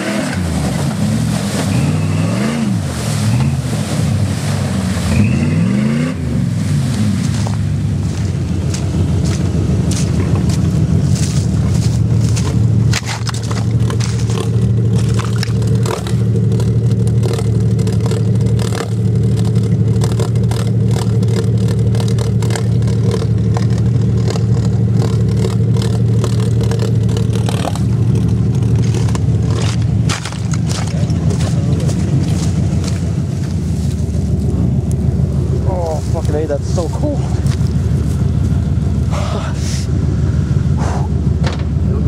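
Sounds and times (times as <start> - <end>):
off-road vehicle engine running: 0.0 - 42.0
scraping and crunching: 6.9 - 38.6.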